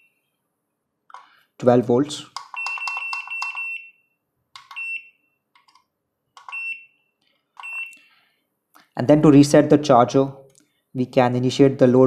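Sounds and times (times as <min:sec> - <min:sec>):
charger key beeps: 0:04.7 - 0:05.2, 0:06.4 - 0:06.9, 0:07.6 - 0:08.0.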